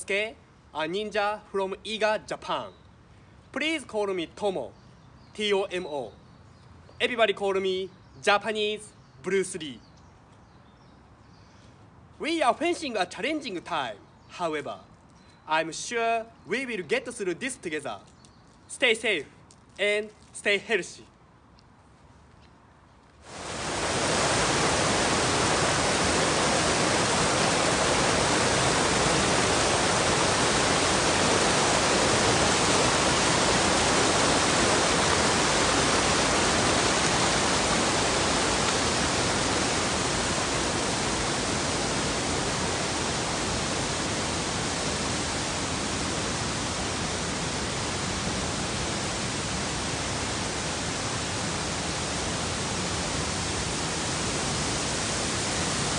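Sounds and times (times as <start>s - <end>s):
stream rushing over rocks: 23.2s - 55.9s.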